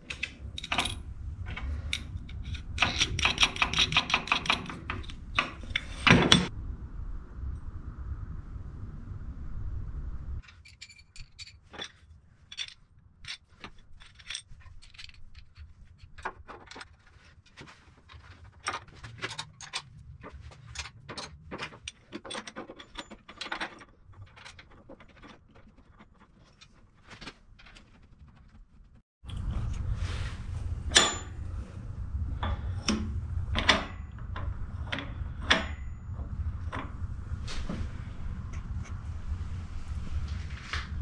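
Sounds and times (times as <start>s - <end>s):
spanner and metal parts clinking: 0.0s - 6.5s, 10.4s - 28.6s, 30.9s - 31.4s, 32.4s - 37.0s.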